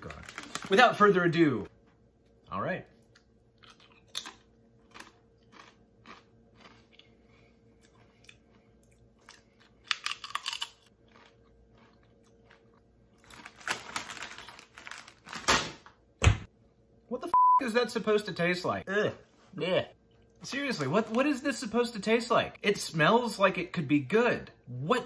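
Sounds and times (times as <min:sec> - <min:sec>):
crunchy chewing of chips: 0:03.0 - 0:15.4.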